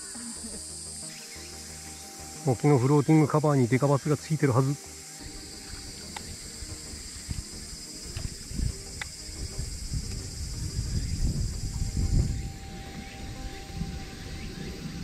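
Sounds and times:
cicadas buzzing: 0.0s - 15.0s
low rumbling on microphone: 6.2s - 15.0s.

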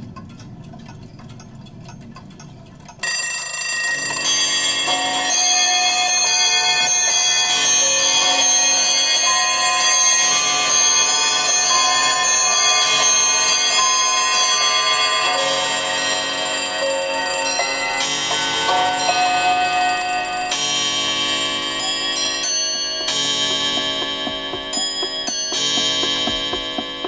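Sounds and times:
music through car speakers: 22.8s - 27.0s.

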